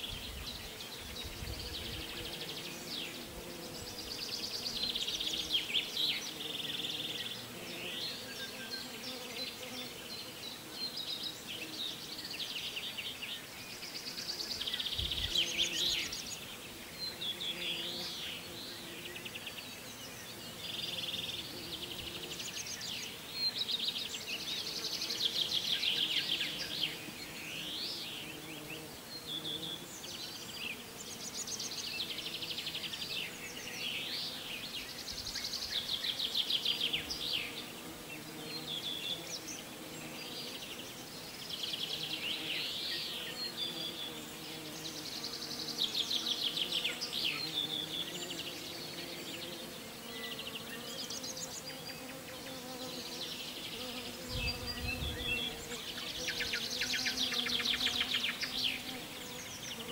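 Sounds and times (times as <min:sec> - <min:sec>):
birds trilling and chirping: 0:24.2 - 0:59.9.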